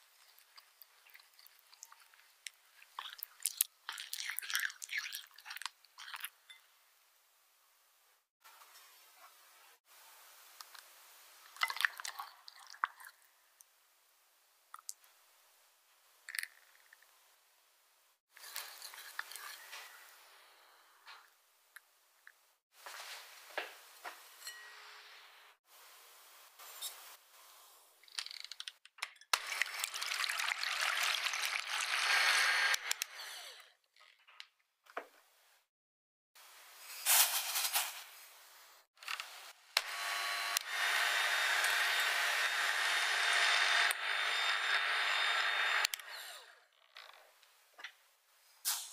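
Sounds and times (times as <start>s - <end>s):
hand mixer beating egg whites: 30.9s - 32.8s, 39.8s - 46.4s.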